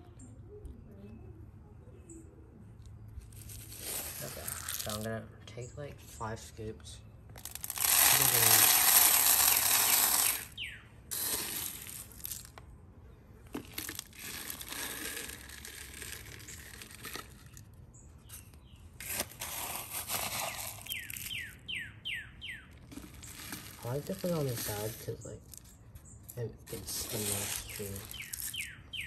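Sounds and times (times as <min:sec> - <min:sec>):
dry feed pouring into plastic feeder: 0:07.4 - 0:10.5.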